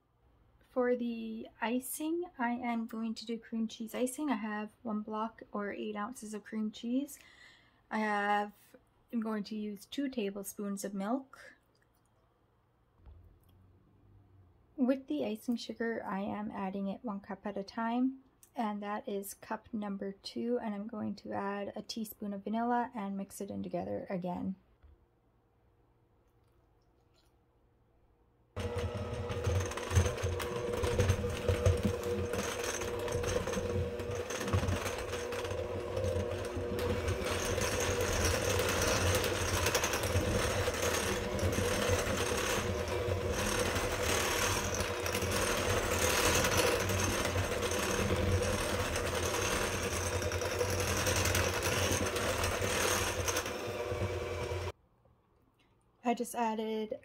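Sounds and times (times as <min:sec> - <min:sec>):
electric hand mixer running: 0:28.6 - 0:54.7.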